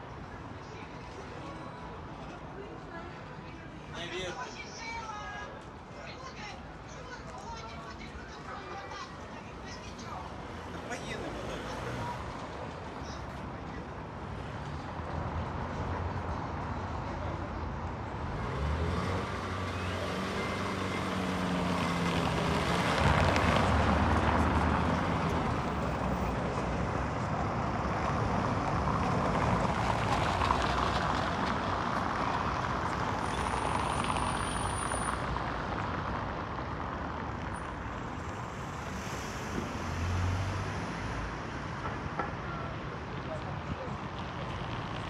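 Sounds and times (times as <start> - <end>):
cars driving past: 14.2 - 43.4.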